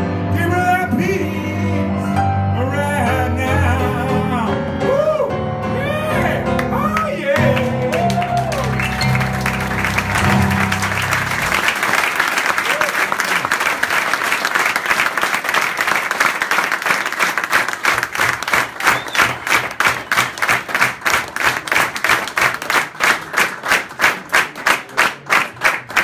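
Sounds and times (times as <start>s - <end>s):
audience applauding: 6.6s - 26.0s
rhythmic clapping in unison: 7.4s - 26.0s.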